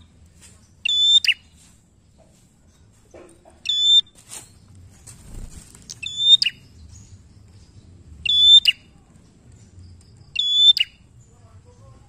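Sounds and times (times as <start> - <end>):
bird whistle call: 0.9 - 1.4, 6.0 - 6.6, 8.3 - 8.8, 10.4 - 11.0.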